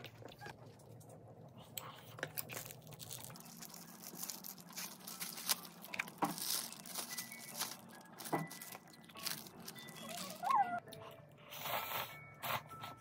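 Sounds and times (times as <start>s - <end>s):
plastic packaging crinkling and tearing: 2.4s - 10.8s.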